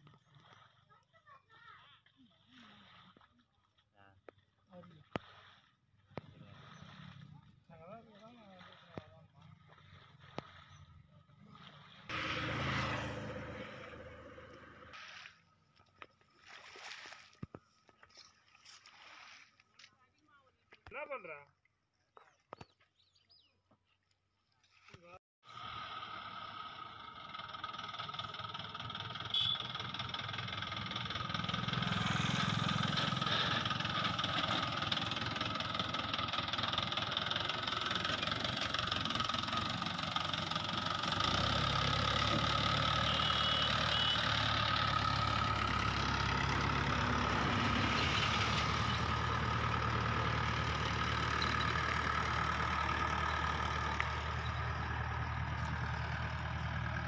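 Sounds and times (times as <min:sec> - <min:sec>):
deeper engine note: 0:09.3 - 0:15.0, 0:25.6 - 0:57.0
tractor diesel engine running: 0:09.8 - 0:15.0, 0:25.6 - 0:57.0.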